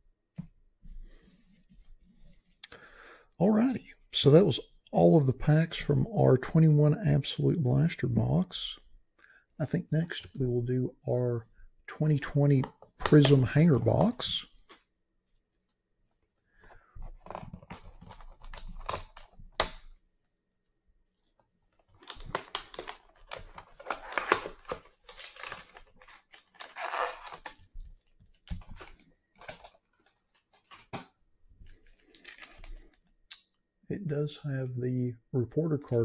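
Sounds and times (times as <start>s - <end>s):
cards clicking and rustling: 12.6s - 14.8s, 21.8s - 31.1s, 31.7s - 33.1s
cardboard tearing and crinkling: 21.9s - 27.7s.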